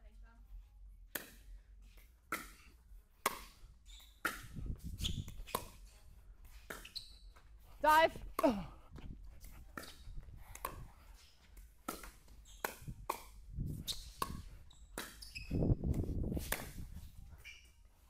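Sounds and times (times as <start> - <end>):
paddles striking pickleball: 2.3 - 4.6, 11.6 - 16.8
short squeaks: 3.8 - 4.2, 4.9 - 5.7, 6.8 - 7.4, 13.9 - 15.7.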